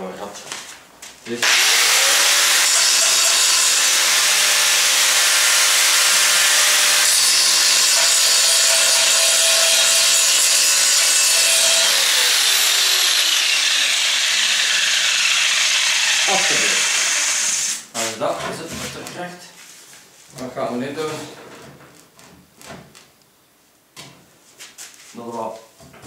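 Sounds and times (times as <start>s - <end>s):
angle grinder grinding steel: 1.4s - 17.9s.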